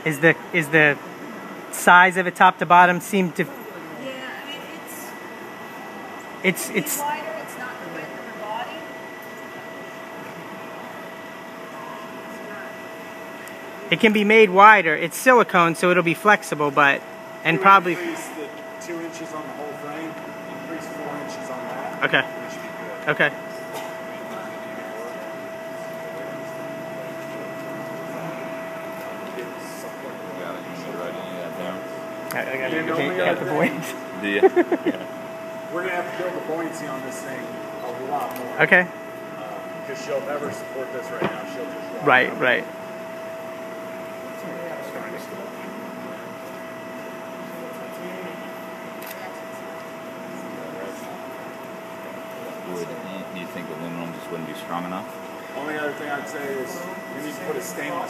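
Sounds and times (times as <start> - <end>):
mechanical hum with whine: 0.0 - 58.0.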